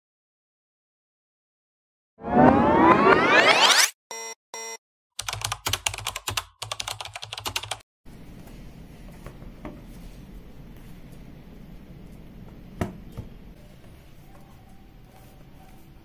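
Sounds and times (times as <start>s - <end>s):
fast typing on keyboard: 5.2s - 7.8s.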